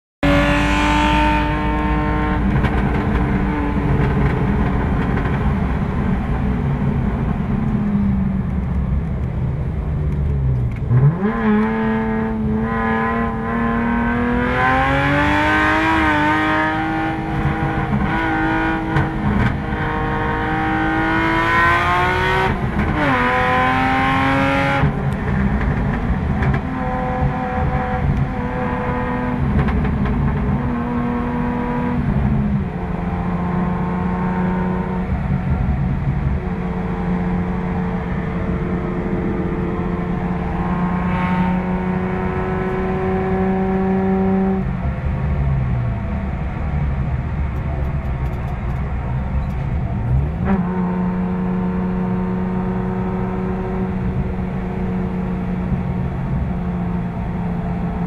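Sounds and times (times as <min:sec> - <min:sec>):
car engine from inside cabin: 0:00.2 - 0:58.0.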